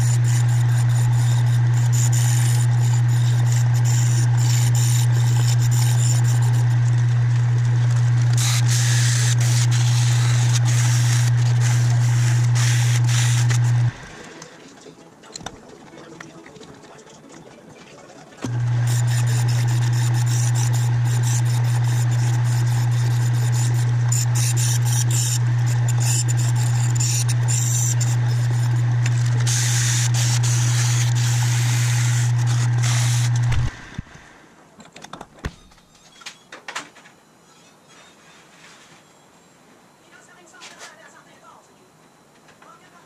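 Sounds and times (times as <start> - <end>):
abrasive scratching metal wheel: 0.0 - 7.0, 18.5 - 33.8
metal lathe humming: 0.0 - 14.6, 18.4 - 34.4.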